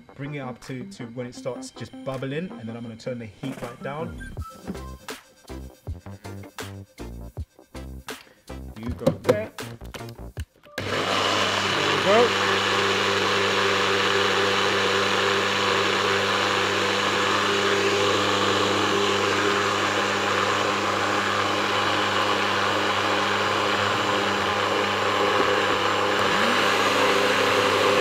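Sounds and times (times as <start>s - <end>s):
blender motor running: 10.8s - 28.0s.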